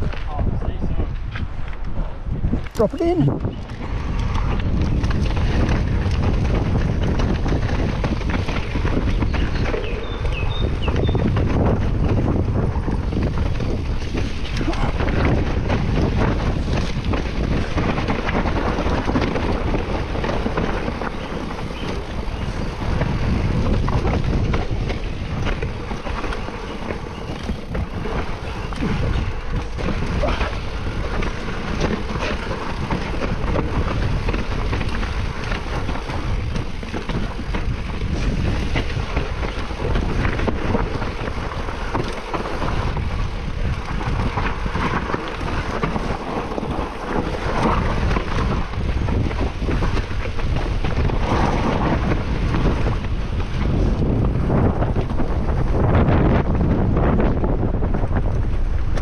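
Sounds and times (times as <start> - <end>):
wind buffeting microphone: 0.0 - 59.0
bike rattling and knocking: 2.5 - 59.0.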